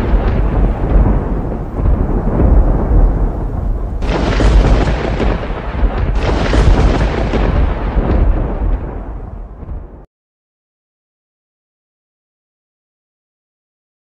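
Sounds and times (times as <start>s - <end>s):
loud bass rumbling: 0.0s - 10.0s.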